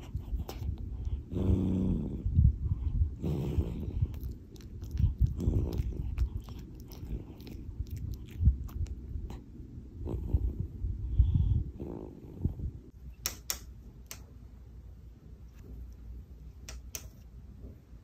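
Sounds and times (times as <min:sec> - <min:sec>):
cat snoring: 0:01.3 - 0:02.3, 0:03.2 - 0:04.0, 0:11.8 - 0:12.5.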